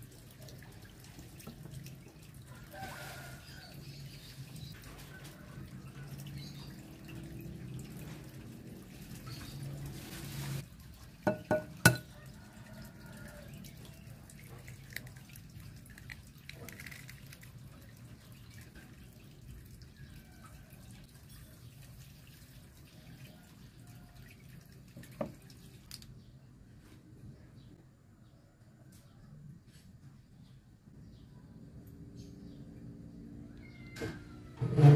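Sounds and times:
egg tapping on glass bowl: 11.3s - 12.1s.

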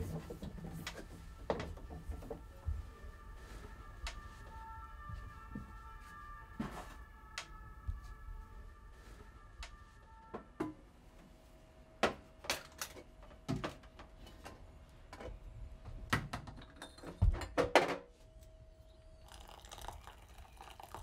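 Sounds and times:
water pouring into plastic bowl: 19.3s - 21.0s.

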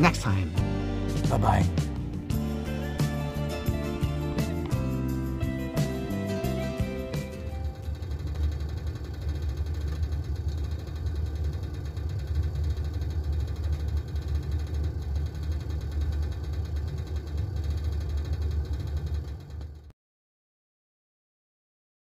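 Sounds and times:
gas stove burner rumbling: 7.7s - 19.9s.

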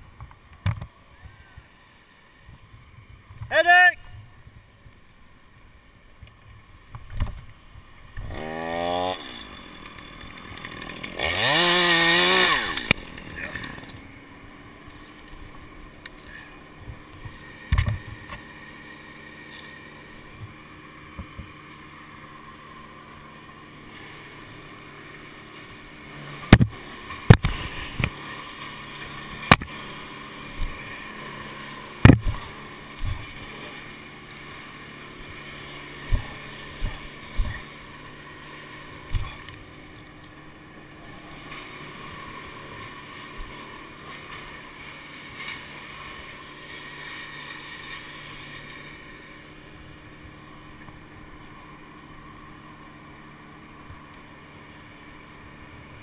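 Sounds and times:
chainsaw idling: 8.2s - 17.7s, 18.4s - 52.2s.

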